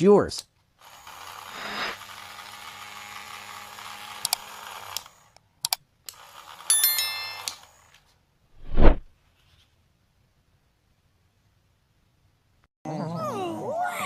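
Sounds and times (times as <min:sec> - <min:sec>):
small motor and fan whirring: 0:00.8 - 0:08.1.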